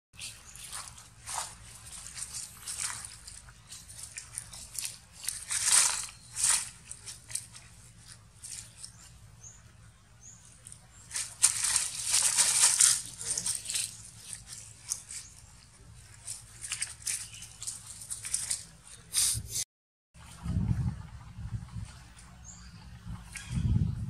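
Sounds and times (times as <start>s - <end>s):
dry leaves rustling and crunching: 0.2s - 19.1s.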